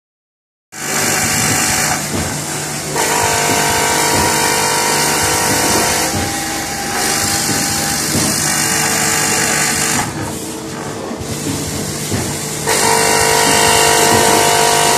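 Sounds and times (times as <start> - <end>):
machine humming: 0.8 - 14.9
machine whine: 0.8 - 14.9.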